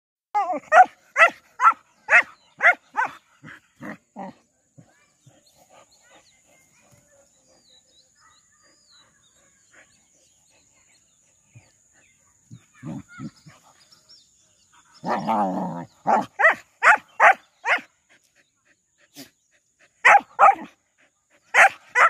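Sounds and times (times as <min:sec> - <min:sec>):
dog barking: 0:00.7 - 0:03.6, 0:16.0 - 0:17.8, 0:20.0 - 0:20.7, 0:21.5 - 0:22.0
dog growling: 0:15.0 - 0:16.3.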